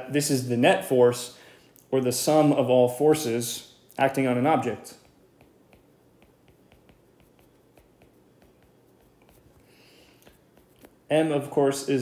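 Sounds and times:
stylus tapping on glass screen: 5.1 - 9.4.

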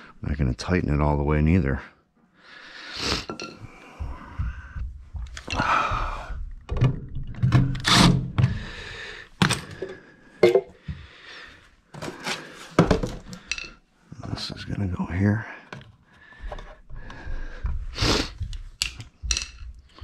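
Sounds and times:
hand tools knocking and scraping: 12.0 - 20.0.

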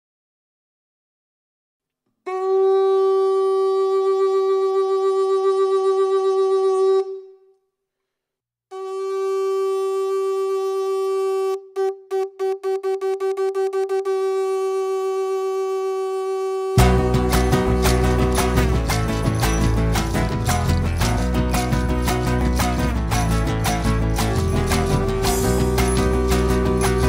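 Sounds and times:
horn sounding a long note: 2.3 - 7.4, 8.7 - 19.6, 24.3 - 27.0.

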